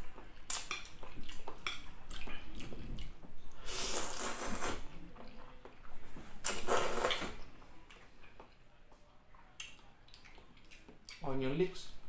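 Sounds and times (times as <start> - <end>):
chewing with mouth clicks: 0.0 - 4.5, 9.3 - 11.2
slurping noodles: 3.6 - 4.9, 6.4 - 7.4.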